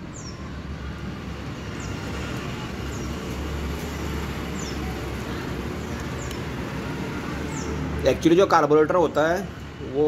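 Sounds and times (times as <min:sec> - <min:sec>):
small bird chirps: 0:00.0 - 0:00.4.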